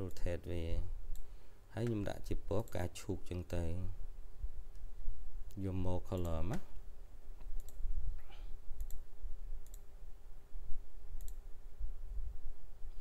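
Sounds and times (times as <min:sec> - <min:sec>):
faint hum: 0:00.0 - 0:13.0
computer mouse clicking: 0:07.4 - 0:07.8, 0:08.8 - 0:09.0, 0:09.6 - 0:09.9, 0:11.2 - 0:11.4.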